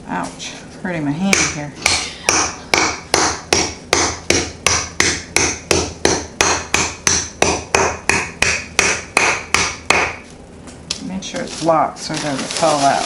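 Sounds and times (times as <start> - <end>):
rolling pin pounding candies: 1.4 - 10.3.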